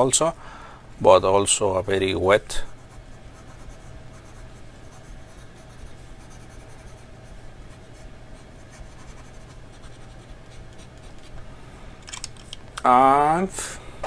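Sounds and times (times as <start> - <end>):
pen nib scratching on paper: 2.6 - 11.3.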